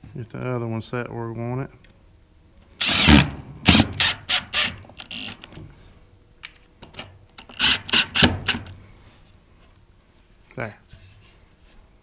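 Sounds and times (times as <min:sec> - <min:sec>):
impact driver driving screws: 0:02.8 - 0:05.4, 0:07.4 - 0:08.7.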